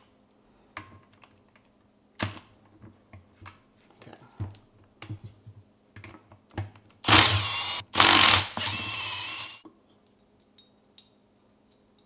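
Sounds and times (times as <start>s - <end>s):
impact driver running: 7.0s - 9.6s.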